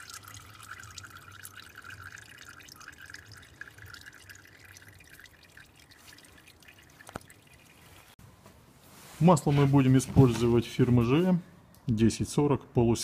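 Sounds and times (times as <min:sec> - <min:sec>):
oil dripping into plastic basin: 0:00.0 - 0:08.1.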